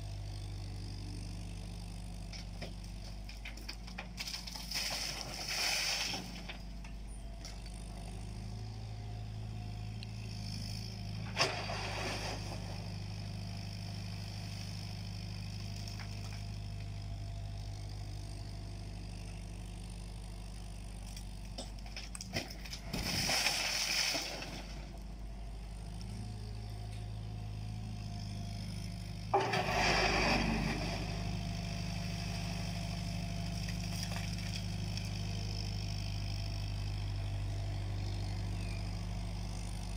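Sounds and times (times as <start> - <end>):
excavator engine running: 0.0 - 39.9
earth and stones scraping: 3.0 - 6.7, 11.2 - 12.9, 21.9 - 25.0, 29.2 - 32.8.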